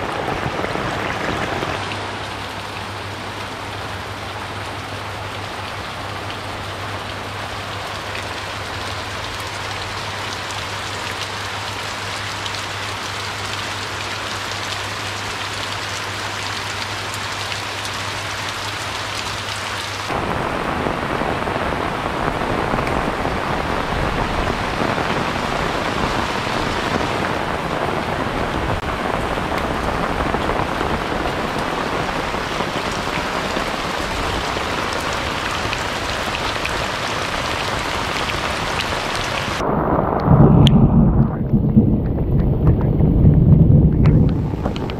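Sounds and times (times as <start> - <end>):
rain falling on leaves: 0.0 - 44.9
low steady hum: 39.6 - 44.9.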